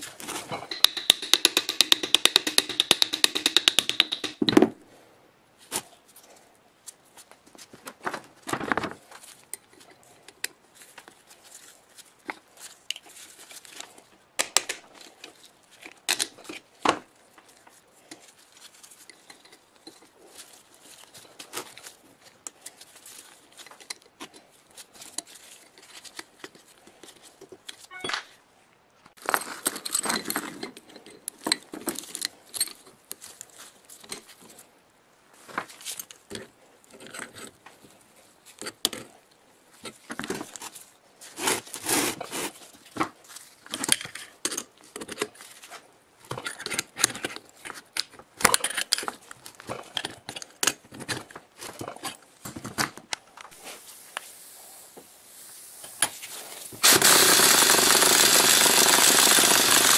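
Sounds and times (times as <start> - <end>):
impact wrench running: 56.8 - 59.9.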